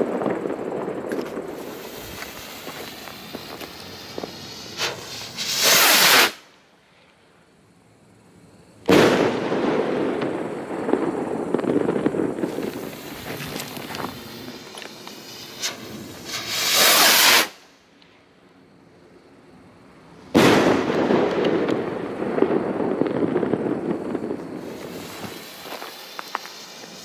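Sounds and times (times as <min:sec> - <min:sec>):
firework rocket bang: 0:00.0 - 0:06.5, 0:08.9 - 0:17.6, 0:20.3 - 0:27.0
firework crackling: 0:00.0 - 0:06.7, 0:08.9 - 0:18.0, 0:20.2 - 0:27.0
firework rocket launch whoosh: 0:01.0 - 0:06.5, 0:11.8 - 0:17.7, 0:24.4 - 0:27.0.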